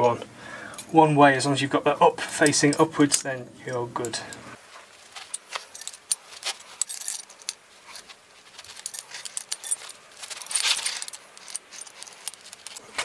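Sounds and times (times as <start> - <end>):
metal rattle: 5.0 - 13.0.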